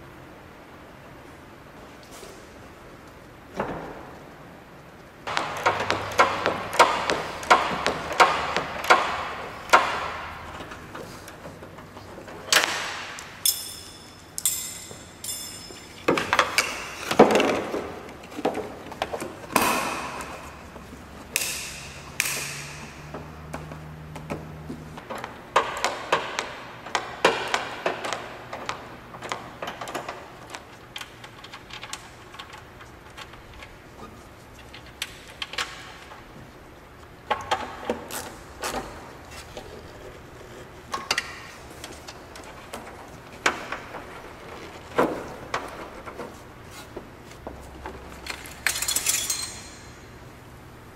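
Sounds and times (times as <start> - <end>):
tools tapping and knocking: 5.3 - 33.7
ringing metallic ping: 13.4 - 16.1.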